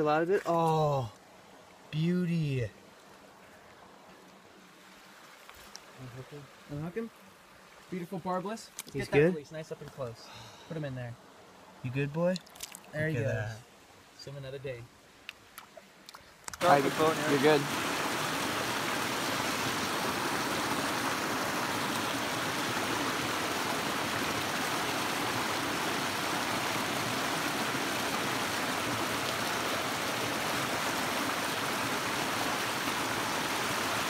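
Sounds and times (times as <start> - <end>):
creek rushing over rocks: 16.6 - 34.0.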